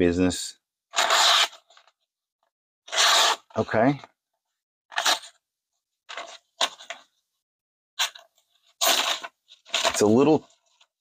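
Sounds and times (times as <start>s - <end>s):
knife slicing paper: 1.0s - 1.7s, 2.9s - 3.5s.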